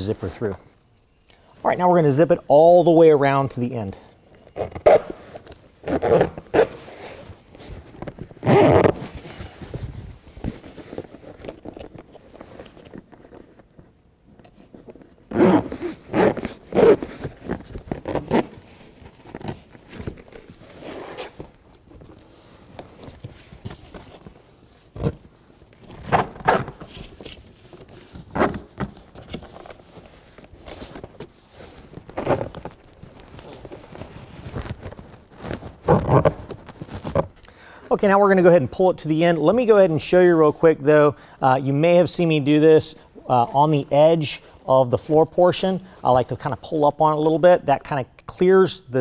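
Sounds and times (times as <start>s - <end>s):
zipper being drawn: 4.5s - 7.2s, 8.4s - 9.2s, 15.3s - 19.5s, 20.6s - 21.4s
fabric panels rustling: 4.5s - 37.4s.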